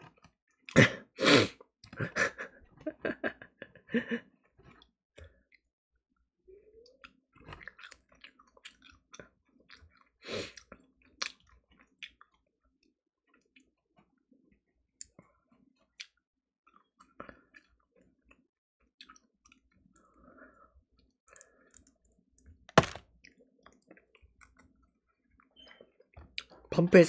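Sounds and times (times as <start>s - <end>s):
man chewing food: 0.0s - 5.6s, 6.9s - 22.6s, 23.2s - 26.7s.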